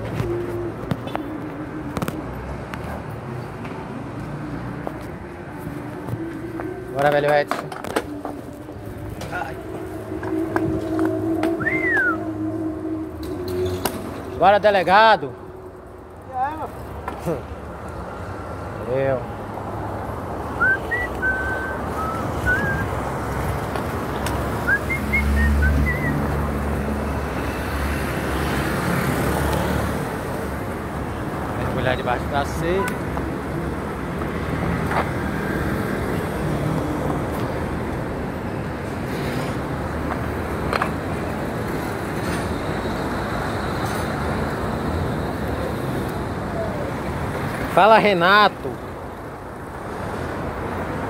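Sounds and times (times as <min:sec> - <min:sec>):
vehicle engine humming: 0:00.0 - 0:48.0
city traffic: 0:00.0 - 0:51.0
passing cars and motorcycles: 0:00.0 - 0:51.0
short whistled notes: 0:11.5 - 0:12.3, 0:20.6 - 0:22.9, 0:24.7 - 0:26.2.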